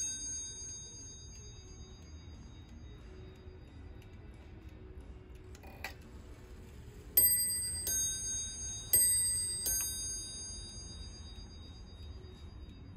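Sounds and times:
clock striking chimes: 0.0s - 4.0s, 7.0s - 12.9s
clock mechanism click: 5.3s - 10.6s.

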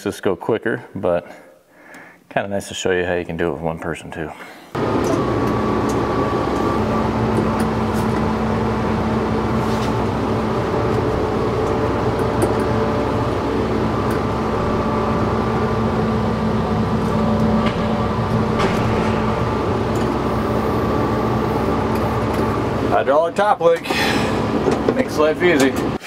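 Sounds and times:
tractor diesel engine running: 4.8s - 26.0s.

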